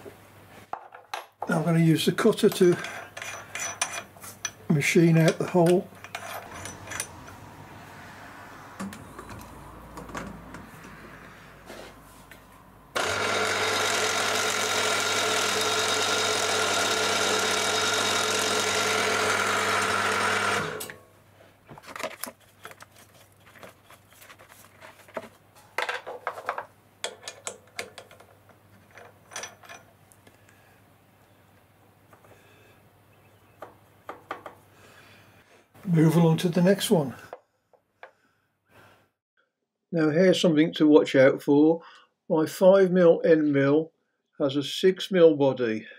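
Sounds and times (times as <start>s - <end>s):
tooling clicks and rattles: 2.4s - 7.4s, 21.8s - 30.4s
milling machine humming and whining: 13.0s - 20.9s.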